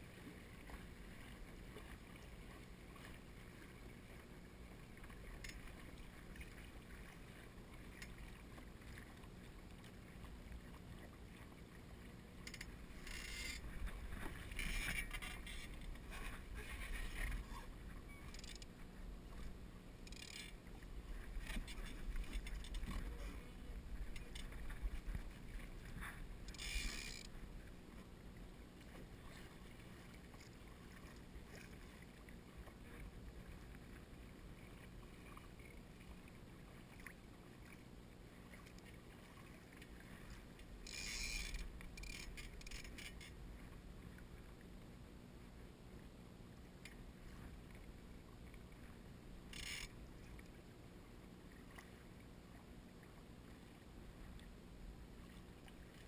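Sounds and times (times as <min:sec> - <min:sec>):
water lapping against a hull: 0:00.0 - 0:56.0
wind rumble on microphone: 0:20.7 - 0:27.7.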